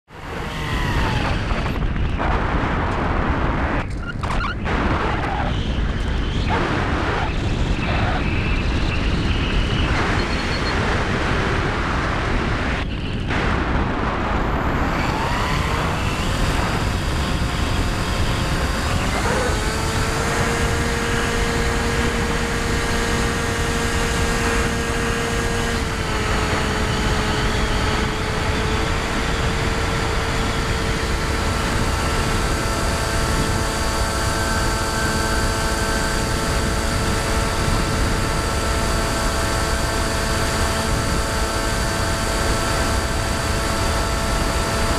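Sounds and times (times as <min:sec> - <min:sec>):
electric motor and propeller whine: 0:00.1 - 0:03.0, 0:13.5 - 0:44.9
wind rush on microphone: 0:00.1 - 0:44.9.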